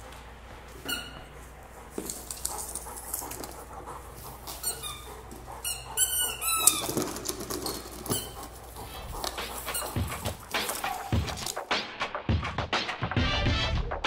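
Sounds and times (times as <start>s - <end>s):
dog toy squeaking: 0.8s - 1.3s, 4.5s - 11.5s.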